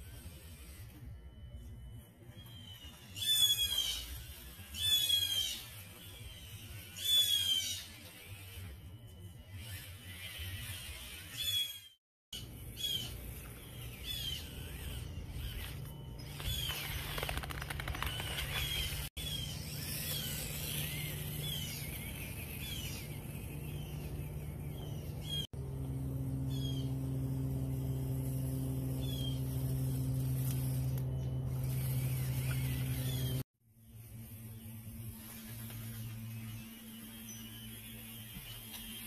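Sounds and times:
small electric motor and gears humming: 0.0 - 39.0
high bird chirps: 10.6 - 33.4.

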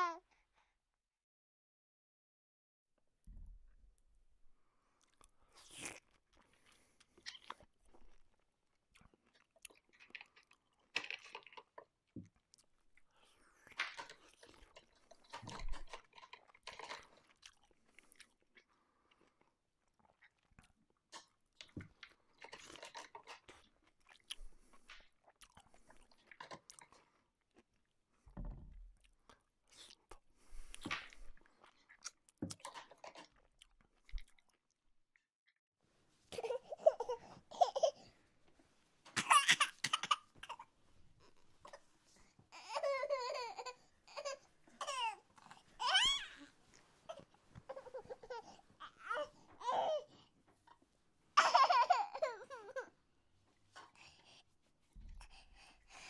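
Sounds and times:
toy doll chewing sounds: 5.0 - 27.8, 29.0 - 34.7.

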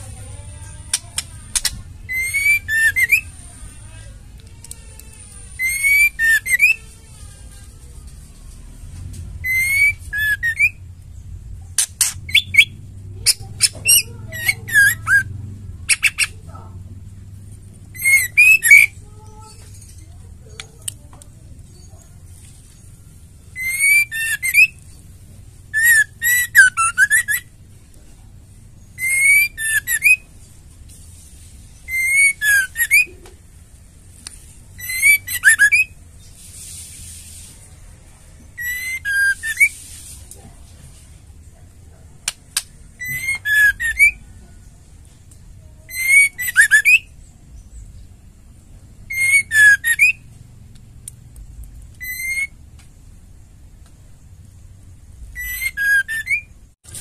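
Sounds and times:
bird singing whistles and trills: 1.6 - 3.4, 5.5 - 6.9, 9.4 - 10.8, 12.3 - 15.3, 18.0 - 19.0, 23.5 - 24.8, 25.7 - 27.5, 28.8 - 30.3, 31.8 - 33.2, 34.8 - 36.0, 38.6 - 39.8, 43.0 - 44.3, 45.9 - 47.8, 49.1 - 50.2, 52.0 - 52.6, 55.3 - 56.6
brief hiss: 36.3 - 37.7.

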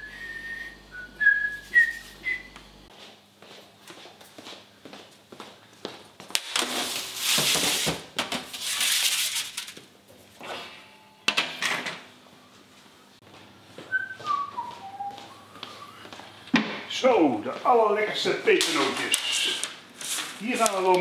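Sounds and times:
person whistling: 0.0 - 2.6, 13.9 - 16.1
metal trays scraping: 6.5 - 9.8.

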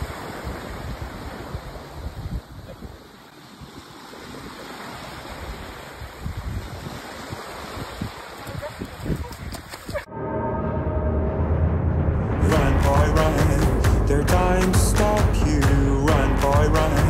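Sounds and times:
small waves washing on beach: 0.0 - 10.1
wind buffeting microphone: 0.0 - 10.1.

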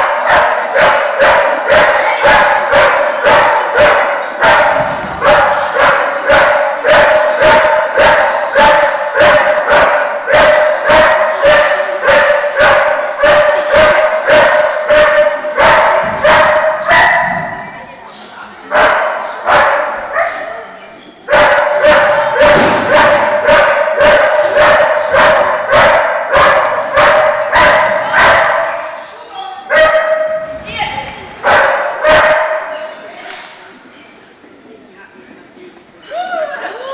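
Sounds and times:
dog barking: 0.0 - 17.5, 18.7 - 20.7, 21.3 - 28.9, 29.7 - 30.5, 31.4 - 32.8.

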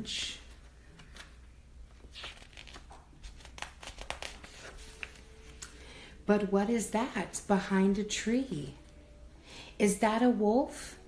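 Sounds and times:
book pages turning: 0.3 - 5.8.

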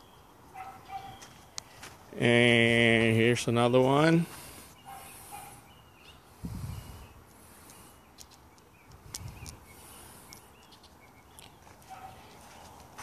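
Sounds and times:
faint bird chirps: 4.7 - 12.8.

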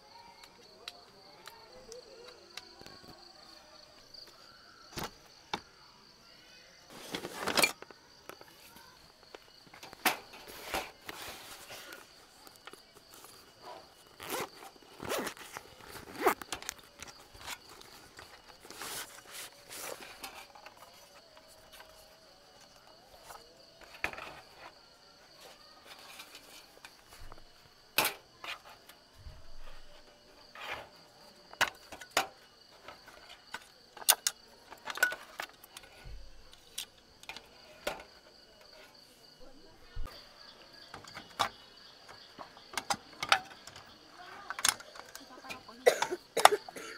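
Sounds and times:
fabric case rustling: 6.9 - 7.9, 13.1 - 20.7
zipper being undone: 14.2 - 16.4.

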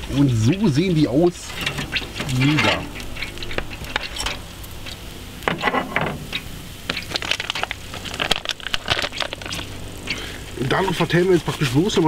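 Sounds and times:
hot fat crackling: 0.0 - 12.0
metal tongs clacking: 1.4 - 9.6.

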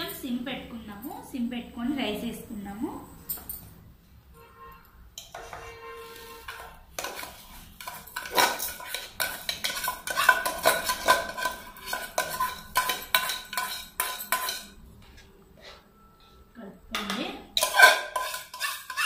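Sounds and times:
spoon scraping metal bowl: 5.2 - 15.9, 17.0 - 19.0.

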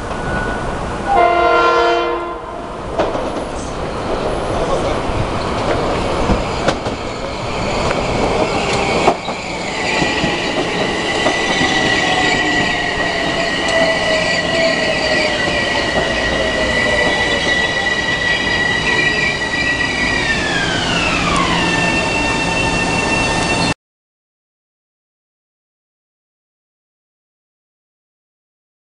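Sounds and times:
train wheels rumbling on rails: 2.6 - 23.8.

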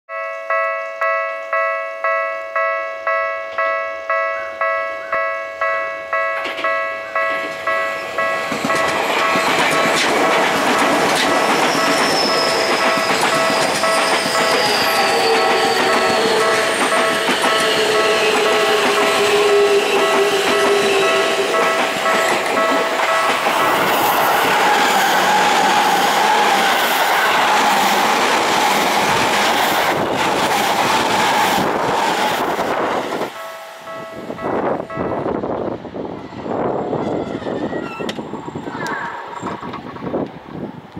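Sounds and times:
level-crossing warning bell: 0.1 - 24.6, 33.2 - 35.4
train wheels clacking: 6.3 - 34.2.

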